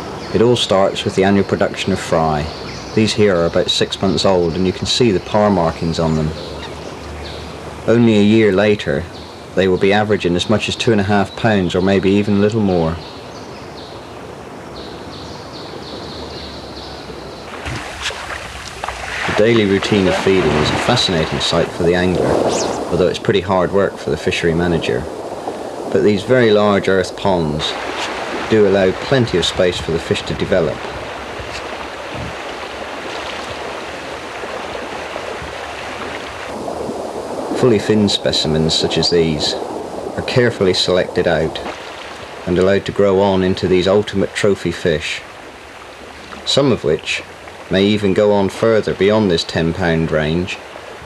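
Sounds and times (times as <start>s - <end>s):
outdoor background noise: 0.0s - 51.0s
fish splashing at surface: 17.5s - 21.5s, 30.7s - 37.5s.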